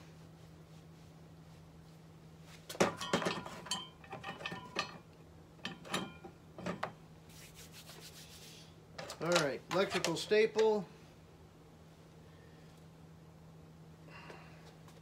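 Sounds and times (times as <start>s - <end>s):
metal hardware clinking in a tin: 2.8s - 6.8s.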